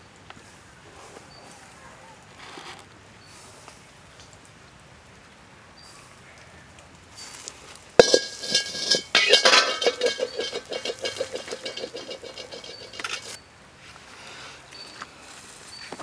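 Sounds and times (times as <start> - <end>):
wok and ladle clanking: 8.0 - 13.4.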